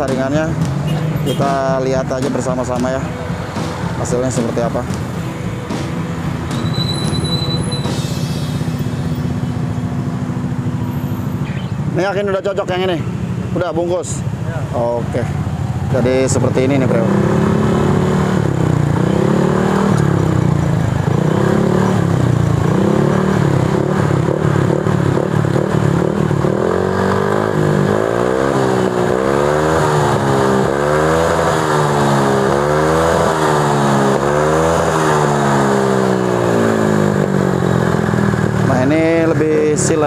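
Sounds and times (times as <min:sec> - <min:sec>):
scooter engine revving: 0:14.2 - 0:40.0.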